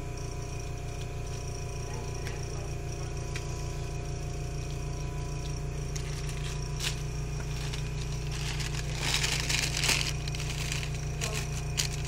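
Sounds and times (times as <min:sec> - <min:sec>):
steady low hum: 0:00.0 - 0:12.0
paper drape crinkling: 0:06.0 - 0:12.0.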